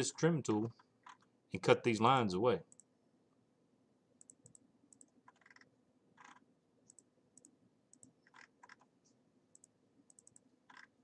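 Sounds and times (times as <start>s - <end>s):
computer mouse clicking: 2.7s - 2.9s, 4.2s - 8.9s, 9.5s - 11.0s.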